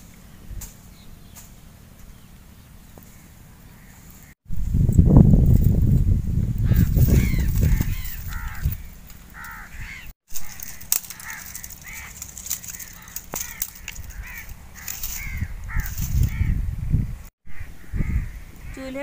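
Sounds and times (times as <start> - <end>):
crows cawing: 3.1 - 4.4, 6.6 - 16.6, 17.5 - 18.8.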